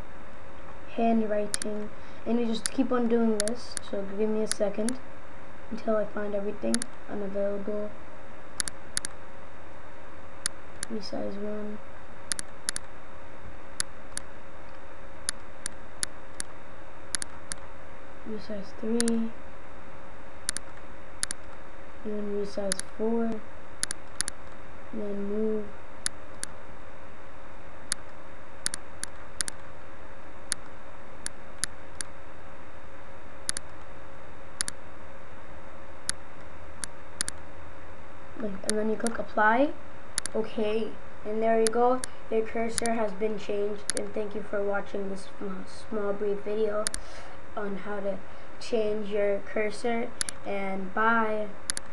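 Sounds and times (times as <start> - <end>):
steady background hum: 0.0 - 51.9
steady low hiss: 0.0 - 51.9
computer mouse buttons clicking: 1.5 - 1.8, 3.4 - 3.9, 4.5 - 5.0, 8.6 - 9.1, 12.3 - 12.9, 17.1 - 17.6, 20.5 - 21.5, 22.7 - 22.9, 23.8 - 24.6, 27.9 - 29.7, 40.2 - 40.4, 43.9 - 44.1, 51.7 - 51.9
computer mouse button clicking: 3.4 - 3.6, 8.6 - 9.1, 12.3 - 12.9.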